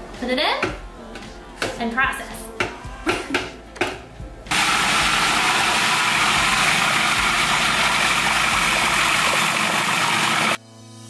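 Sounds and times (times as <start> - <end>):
food processor running: 4.5 - 10.6.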